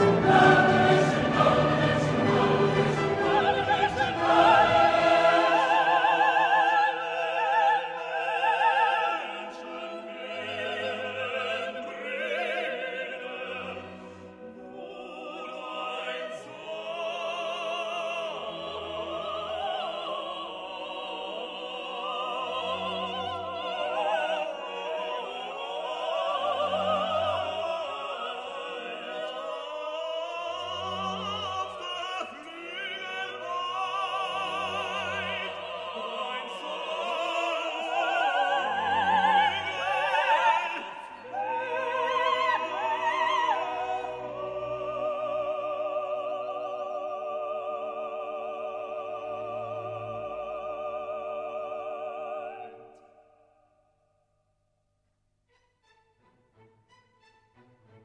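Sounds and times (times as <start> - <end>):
orchestra playing: 0.0 - 8.3, 55.5 - 58.0
operatic singing with vibrato: 0.0 - 53.6.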